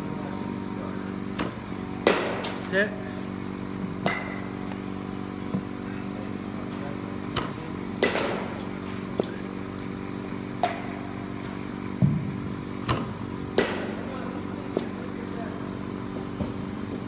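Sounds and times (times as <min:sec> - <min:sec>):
steady mechanical hum: 0:00.0 - 0:17.0
balls hitting batting cage: 0:01.2 - 0:02.9, 0:03.9 - 0:17.0
bat hitting ball: 0:01.4 - 0:02.6, 0:04.0 - 0:04.5, 0:07.4 - 0:09.4, 0:10.6 - 0:14.1.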